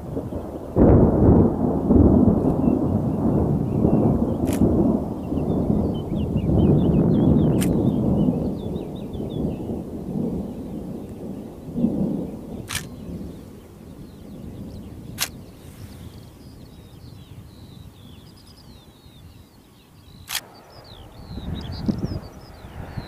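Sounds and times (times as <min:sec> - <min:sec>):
distant thunder rumbling: 0:00.0 - 0:23.0
small birds chirping: 0:02.5 - 0:23.0
sharp clicks: 0:04.4 - 0:04.7, 0:07.6 - 0:07.8, 0:12.7 - 0:12.9, 0:15.2 - 0:15.4, 0:20.2 - 0:20.6.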